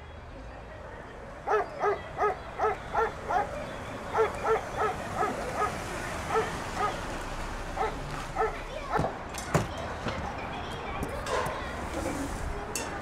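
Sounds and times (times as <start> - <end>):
dog barking in high yaps: 7.8 - 9.1.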